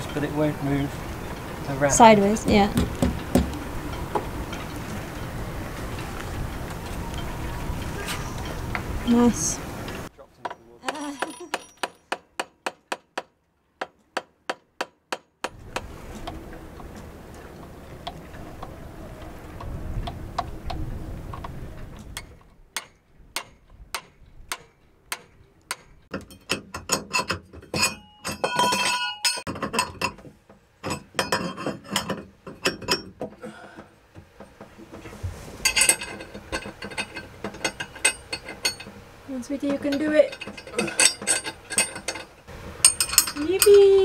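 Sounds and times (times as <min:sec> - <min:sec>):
low wind rumble: 0:00.0 - 0:10.2, 0:15.4 - 0:26.1, 0:32.3 - 0:44.0
spanner clicking on metal nut: 0:39.7 - 0:43.8.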